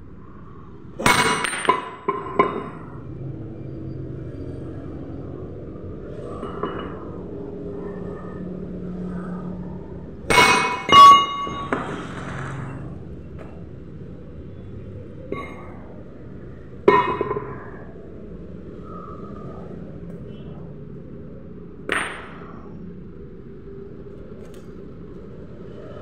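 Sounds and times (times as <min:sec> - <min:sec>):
steel clanging on steel plate: 0:10.3 - 0:11.9.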